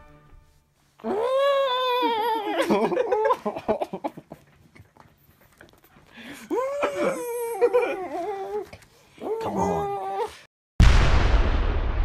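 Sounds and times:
person whining: 0:01.0 - 0:03.5, 0:06.3 - 0:10.5.

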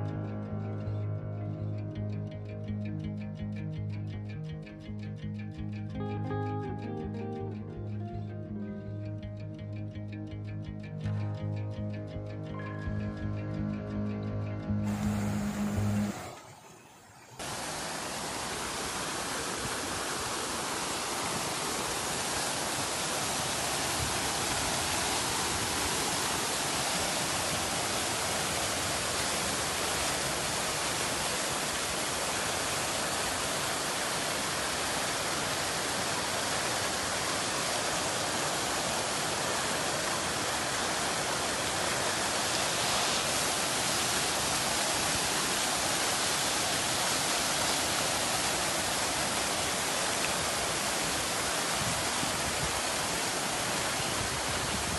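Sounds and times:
fountain water splashing: 0:14.8 - 0:54.9.

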